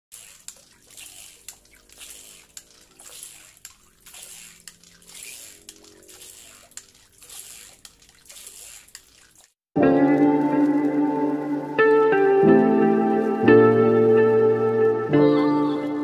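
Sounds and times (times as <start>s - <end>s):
hand pump clicks: 0.1s - 9.6s
water gushing and splashing: 0.1s - 13.4s.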